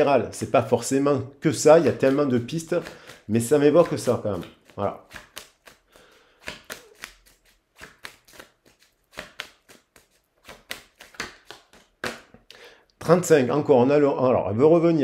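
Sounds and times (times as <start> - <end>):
cards being shuffled: 1.6 - 12.5.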